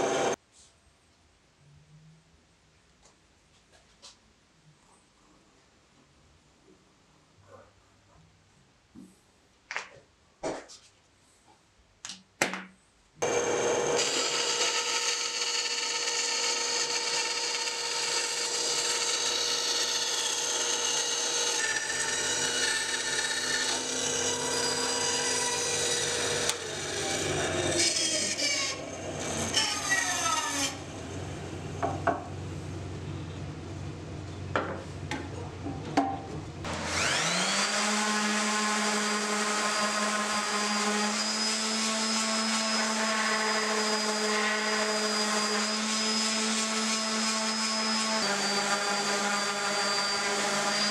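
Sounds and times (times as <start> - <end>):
band saw cutting wood: 0.0 - 0.4, 13.2 - 31.4, 36.7 - 50.9.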